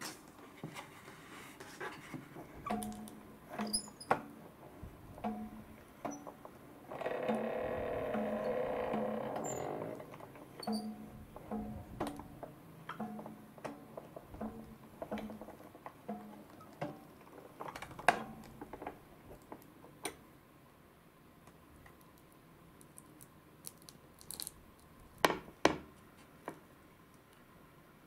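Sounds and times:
sticky rice squishes: 22.0 - 25.0.

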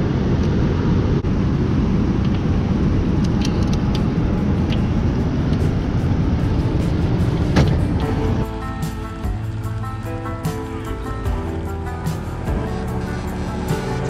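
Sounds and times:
wind and water rumble: 0.0 - 10.2.

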